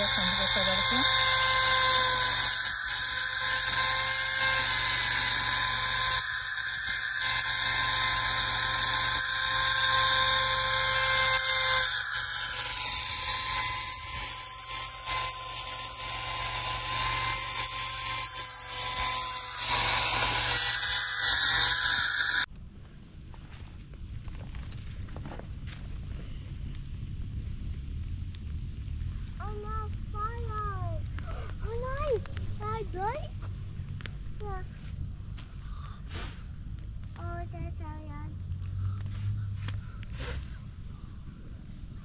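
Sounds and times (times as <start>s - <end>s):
electric chainsaw whining: 0.0s - 22.5s.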